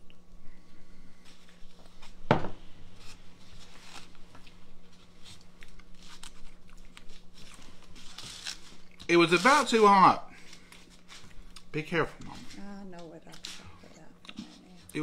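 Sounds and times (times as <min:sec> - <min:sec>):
fork scraping paper plate: 0:08.0 - 0:10.0.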